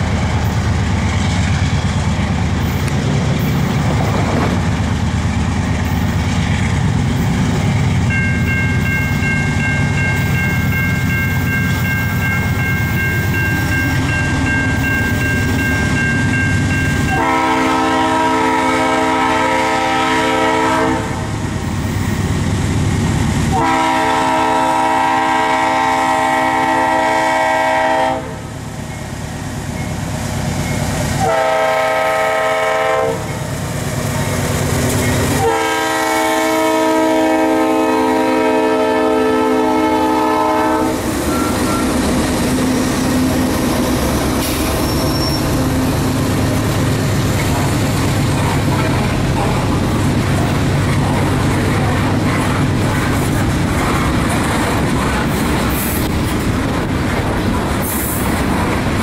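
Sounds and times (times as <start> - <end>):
train rolling rumble: 0.0 - 59.0
locomotive air horn blasts: 17.0 - 21.3, 23.5 - 28.5, 31.2 - 33.3, 35.3 - 41.9
wheels clacking on rail joints: 41.0 - 59.0.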